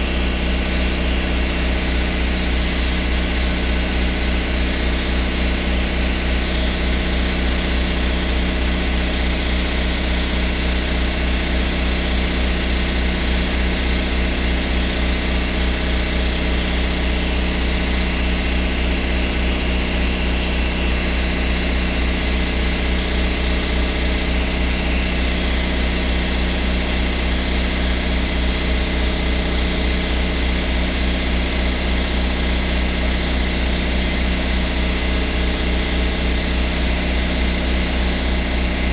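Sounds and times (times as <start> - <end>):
air compressor chugging: 0.0 - 38.9
spray gun hissing: 16.0 - 18.2, 24.1 - 38.3.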